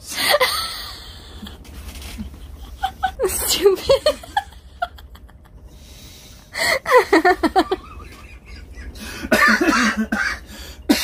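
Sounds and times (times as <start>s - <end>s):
man coughing muffled: 9.0s - 11.0s.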